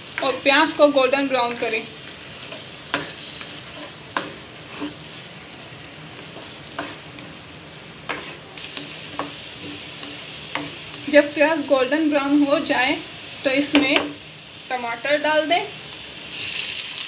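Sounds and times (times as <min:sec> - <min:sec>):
onions sizzling in hot oil: 0:00.0 - 0:17.0
spatula scraping and knocking a pan: 0:02.4 - 0:05.2, 0:06.2 - 0:07.2, 0:08.0 - 0:11.2.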